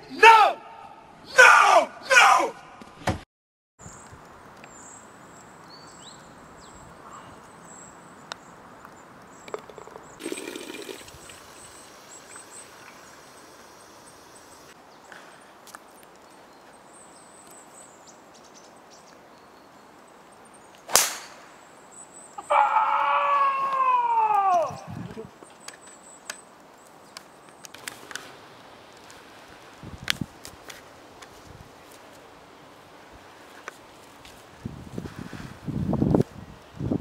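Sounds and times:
water running into plastic bottle: 9.6 - 12.4.

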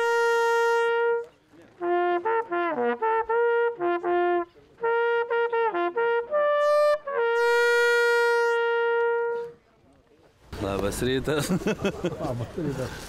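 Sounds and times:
hunting horn blowing: 0.0 - 9.6.

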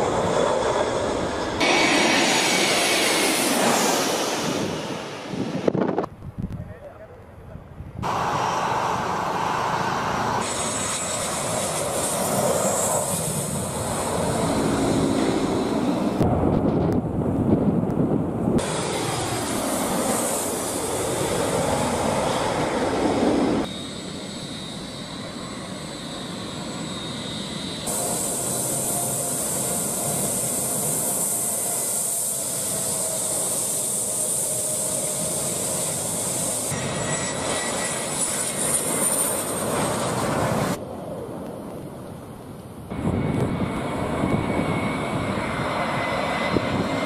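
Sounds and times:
high engine whine: 0.0 - 47.0
jet engines roaring: 0.0 - 47.0.

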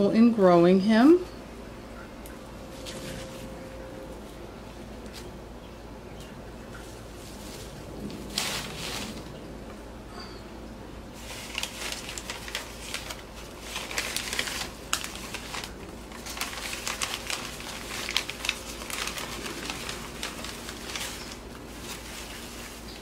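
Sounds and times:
paper crinkling and rustling: 2.6 - 3.6, 6.8 - 9.5, 11.1 - 23.0.

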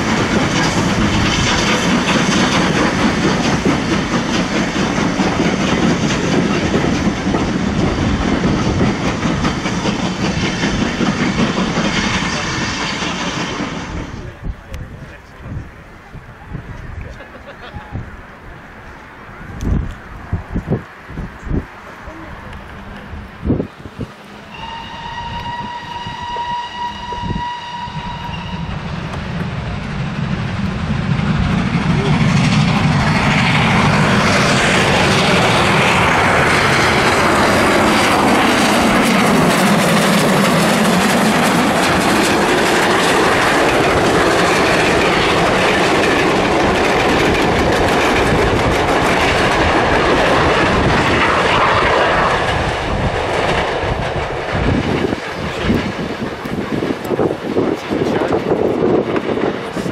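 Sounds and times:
steam locomotive passing: 0.0 - 59.9
steam locomotive whistle: 24.4 - 29.0.

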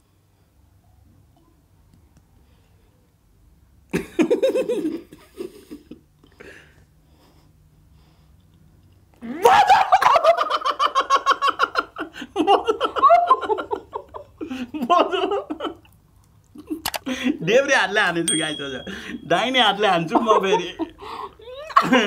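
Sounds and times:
man and woman laughing: 3.9 - 6.0, 9.2 - 15.8, 20.1 - 22.0.

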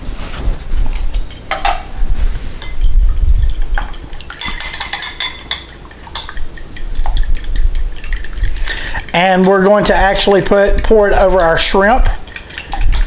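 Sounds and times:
fork clinking against glass bowl: 2.6 - 9.6, 11.5 - 13.0.

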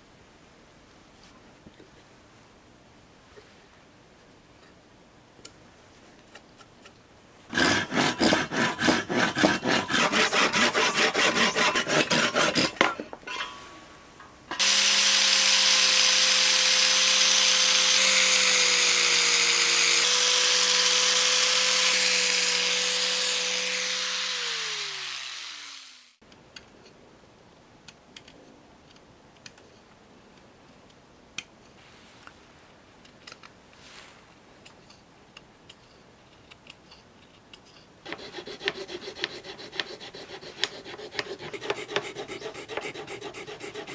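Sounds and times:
angle grinder on wood: 7.5 - 12.9, 14.5 - 26.2, 38.1 - 43.9
hand tool rasping on wood: 7.5 - 12.9, 38.1 - 43.9
knife scraping wood: 7.5 - 13.0, 37.6 - 43.9.

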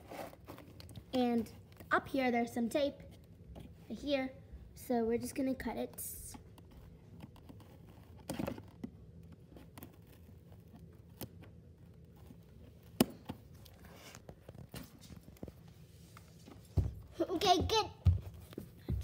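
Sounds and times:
rustling scrape: 0.0 - 0.8, 13.7 - 16.7.

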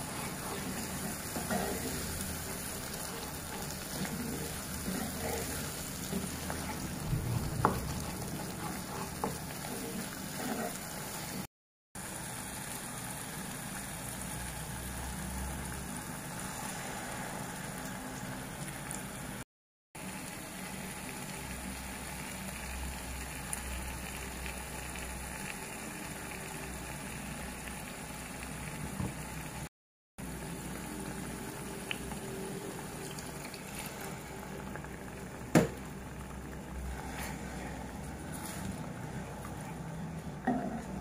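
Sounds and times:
wooden spatula scraping pot: 0.0 - 10.9
paste sizzling in oil: 0.0 - 11.5.

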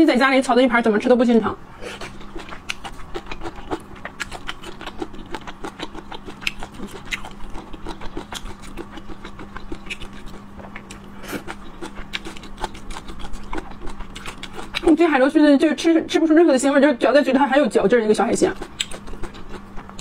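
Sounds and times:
faint steady hum: 0.0 - 20.0
wet chewing and mouth clicks: 1.9 - 15.1, 18.2 - 20.0.

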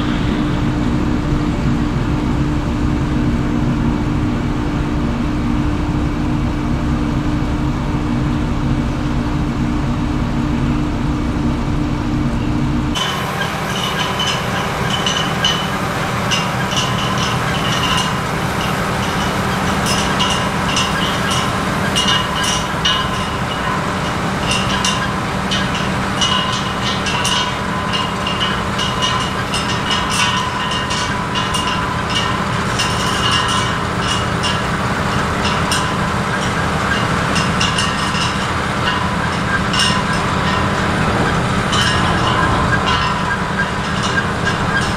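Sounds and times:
harvester engine drone: 0.0 - 44.9
tractor engine running: 0.0 - 44.9
clattering and clinking machinery: 12.3 - 44.9.

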